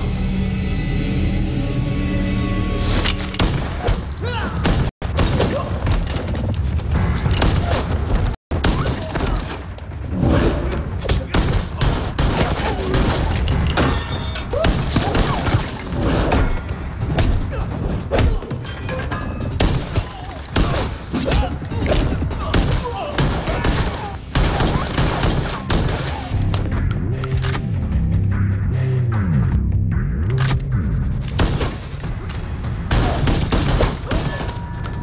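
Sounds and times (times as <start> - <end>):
dramatic music: 0.0 - 35.0
rapid gunshots: 22.0 - 26.3.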